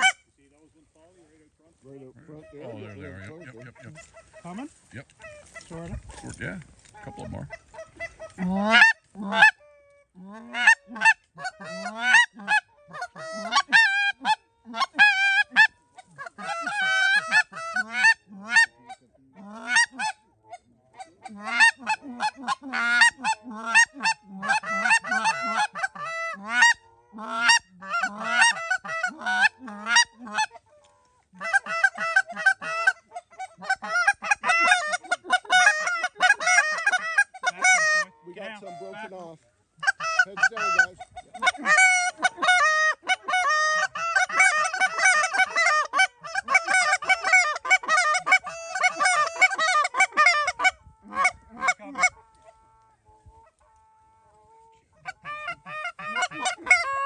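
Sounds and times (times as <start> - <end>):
goose honking and clucking: 0.0 - 0.3, 2.1 - 57.0.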